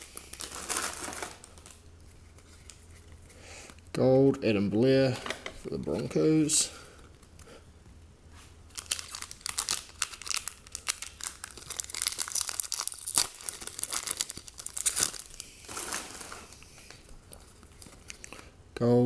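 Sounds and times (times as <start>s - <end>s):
wrapper being torn and crinkled: 0.0s - 1.8s, 8.7s - 18.4s.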